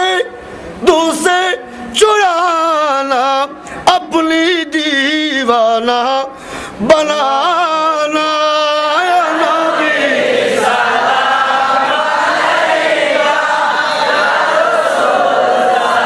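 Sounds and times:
group chanting together: 0:09.1 - 0:16.0.

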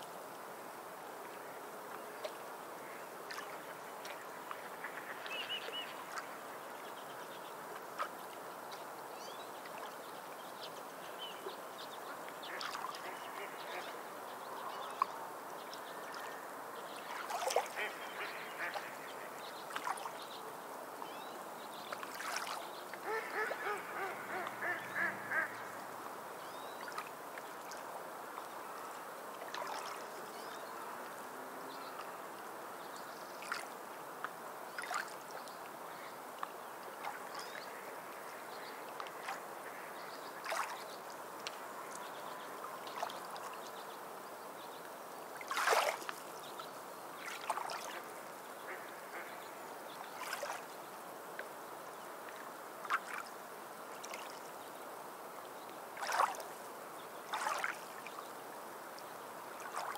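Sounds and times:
bird calls: 0:22.2 - 0:25.8.

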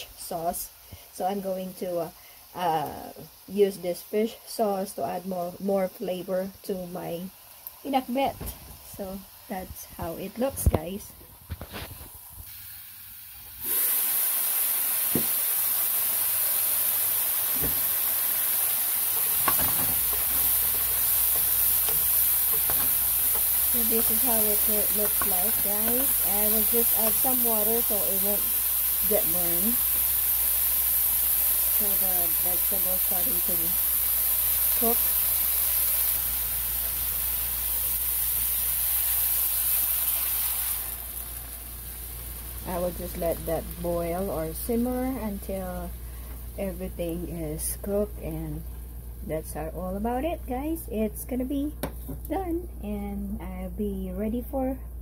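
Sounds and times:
meat and vegetables sizzling: 0:00.0 - 0:52.8
wooden spoon knocking pot: 0:19.2 - 0:26.4.

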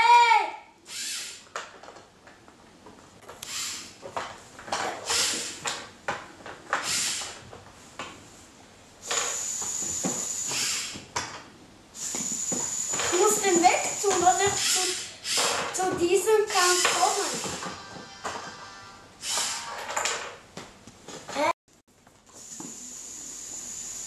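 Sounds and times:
robot electric motors whirring: 0:00.9 - 0:01.4, 0:03.4 - 0:04.0, 0:05.0 - 0:05.7, 0:06.8 - 0:07.4, 0:09.0 - 0:11.0, 0:12.0 - 0:17.8, 0:19.2 - 0:19.7, 0:22.3 - 0:24.0.

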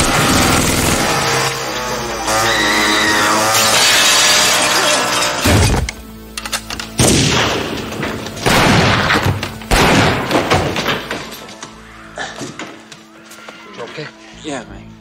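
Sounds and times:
tense film score: 0:00.0 - 0:15.0
glass shattering: 0:03.4 - 0:05.9
pistol shot: 0:07.0 - 0:07.8, 0:08.4 - 0:10.8
loud bangs: 0:07.0 - 0:11.6.

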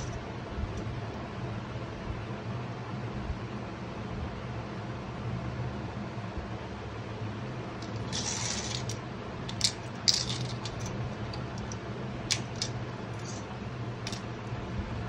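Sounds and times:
metal picks clinking on plastic: 0:07.8 - 0:13.4.

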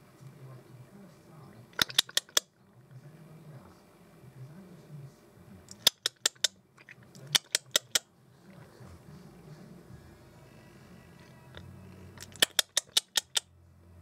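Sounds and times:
sharp clicks: 0:01.8 - 0:02.5, 0:05.7 - 0:06.5, 0:07.2 - 0:08.0, 0:12.2 - 0:13.5.

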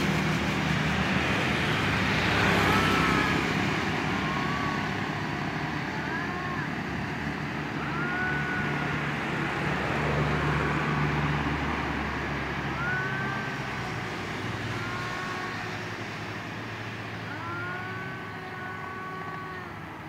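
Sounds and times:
road traffic noise: 0:00.0 - 0:20.0
vehicle engine rumbling past: 0:00.0 - 0:20.0
cat yowling: 0:04.2 - 0:04.9, 0:07.8 - 0:08.8, 0:12.8 - 0:13.9.

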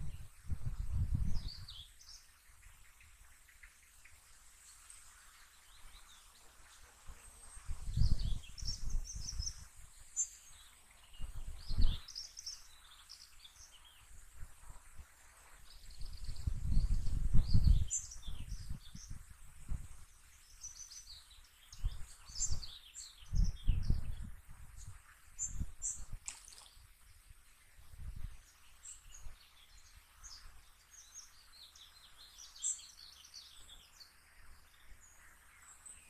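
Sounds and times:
wind buffeting microphone: 0:00.0 - 0:02.1, 0:07.1 - 0:10.0, 0:10.6 - 0:12.9, 0:15.8 - 0:26.8, 0:27.7 - 0:28.5
small birds singing: 0:00.0 - 0:36.0.

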